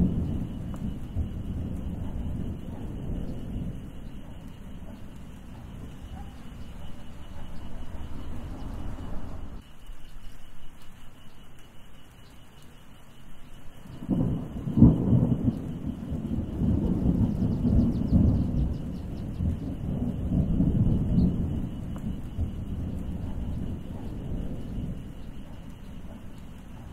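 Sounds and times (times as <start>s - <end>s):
rolling thunder: 0.0s - 9.7s, 13.8s - 26.9s
light rain: 0.0s - 26.9s
loud thunder clap: 14.0s - 26.9s.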